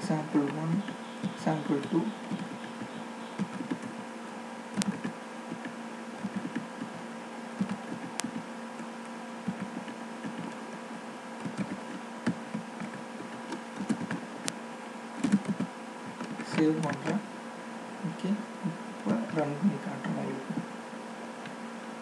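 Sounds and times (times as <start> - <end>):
steady low hum: 0.0 - 22.0
keyboard keys clicking: 0.4 - 4.0, 4.8 - 7.0, 7.6 - 8.9, 9.5 - 10.6, 11.4 - 14.6, 15.2 - 17.2.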